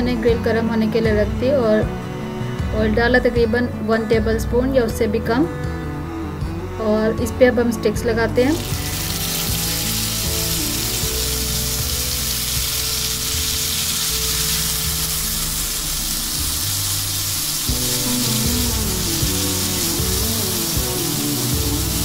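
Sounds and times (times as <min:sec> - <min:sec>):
background music: 0:00.0 - 0:22.0
chicken sizzling in hot oil: 0:08.5 - 0:22.0.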